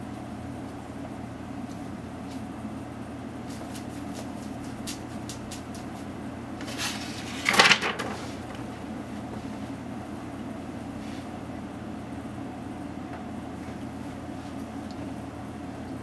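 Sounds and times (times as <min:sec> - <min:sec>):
low room hum: 0:00.0 - 0:16.0
paper rustling scrape: 0:06.6 - 0:08.6.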